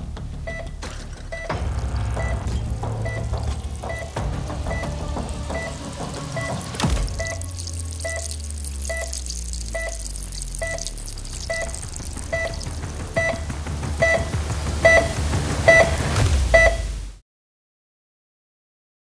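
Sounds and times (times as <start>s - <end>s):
low steady drone: 1.5s - 17.0s
heart monitor beeping: 2.2s - 16.9s.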